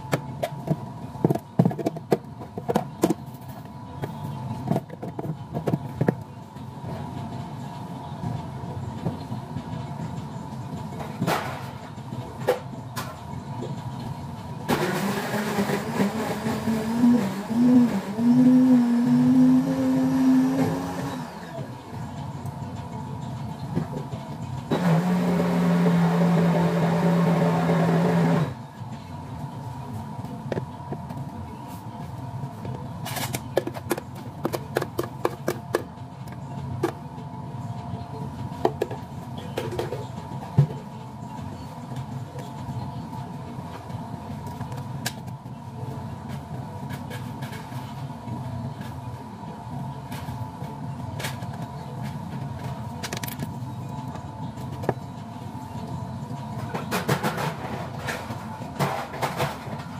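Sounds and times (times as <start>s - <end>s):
shop equipment hum: 0.0s - 59.9s
blender running: 14.7s - 21.6s, 24.7s - 28.6s.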